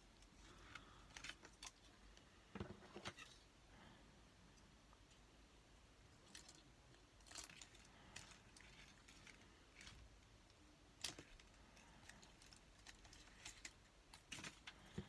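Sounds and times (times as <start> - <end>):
plastic tape crinkling: 11.0 - 14.9.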